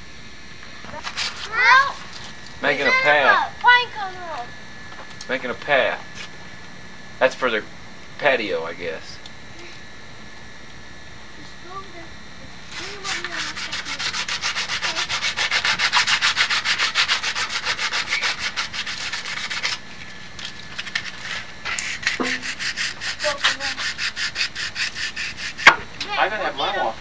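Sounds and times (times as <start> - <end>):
sandpaper scraping wood: 0.9 - 3.2, 12.7 - 25.7.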